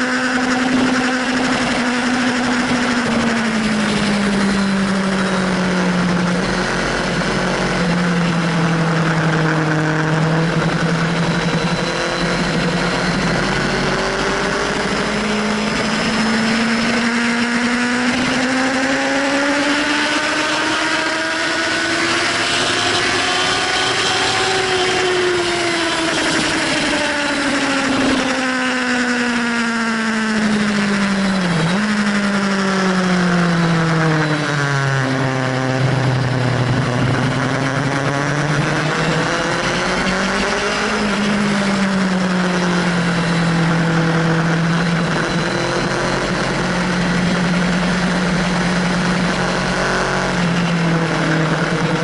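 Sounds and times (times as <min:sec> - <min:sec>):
motorcycle engine accelerating: 0:00.0 - 0:52.0
wind rushing over microphone: 0:34.9 - 0:52.0.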